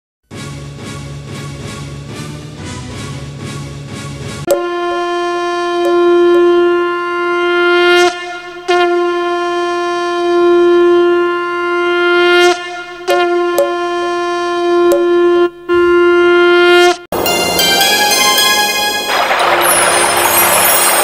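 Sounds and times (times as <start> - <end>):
conch shell blasts: 4.5 - 17.0.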